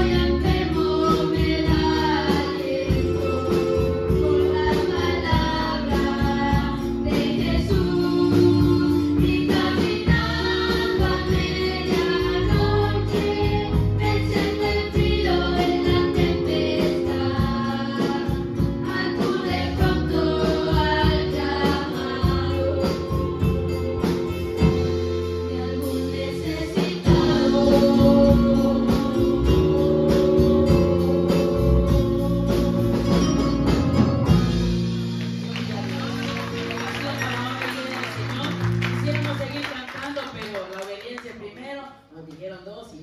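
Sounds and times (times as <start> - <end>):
voices singing together: 0.0 - 24.2, 25.3 - 33.4
instrumental accompaniment with beat: 0.0 - 40.7.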